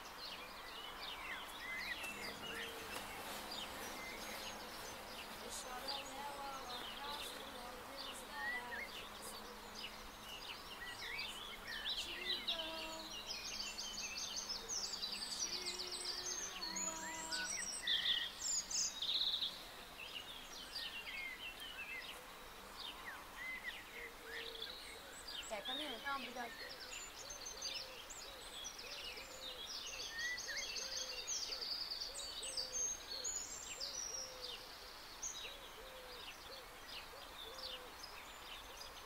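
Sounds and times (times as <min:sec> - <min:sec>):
birds chirping and calling: 0:00.0 - 0:39.0
insects buzzing: 0:01.4 - 0:24.0.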